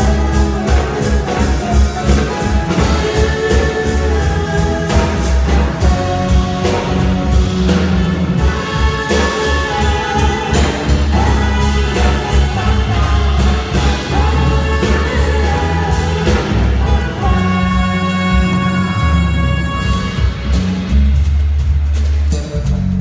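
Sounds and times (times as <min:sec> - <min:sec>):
drums keeping steady beat: 0:00.0 - 0:23.0
electric bass: 0:00.0 - 0:23.0
smooth jazz band playing: 0:00.0 - 0:23.0.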